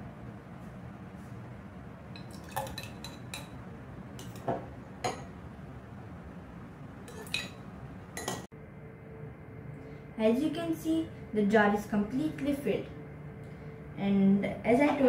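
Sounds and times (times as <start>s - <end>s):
metal spoon clinking on glass: 7.1s - 7.6s.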